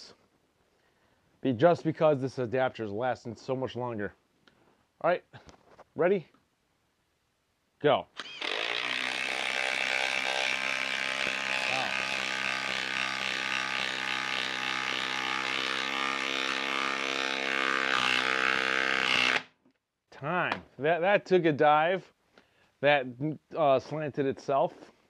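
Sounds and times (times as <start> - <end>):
impact driver hammering: 8.4 - 19.5.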